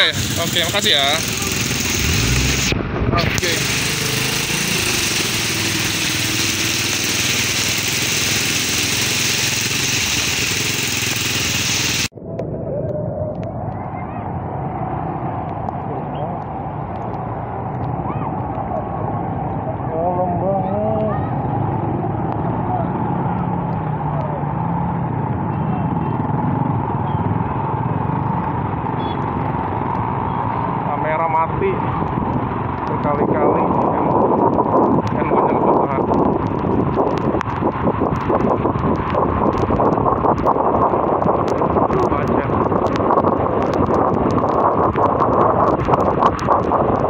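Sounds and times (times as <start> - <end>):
hiss of rain and wind: 0.0 - 12.1, 31.8 - 47.0
motorcycle engine running: 0.0 - 12.1
traffic on wet road: 0.0 - 12.1, 14.6 - 47.0.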